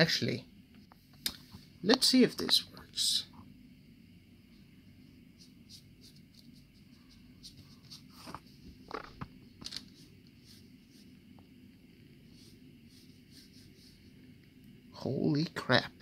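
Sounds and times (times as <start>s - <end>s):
paintbrush scratching strokes: 4.5s - 9.1s, 9.8s - 14.4s
brush scraping: 5.3s - 9.1s, 9.8s - 11.2s, 12.2s - 14.2s.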